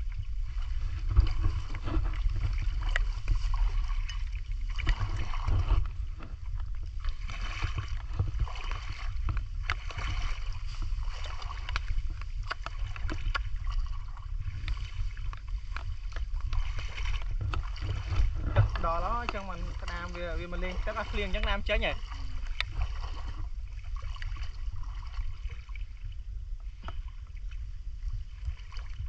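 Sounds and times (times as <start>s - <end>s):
wading through muddy water: 0.0s - 29.0s
wind rumble on microphone: 0.0s - 29.0s.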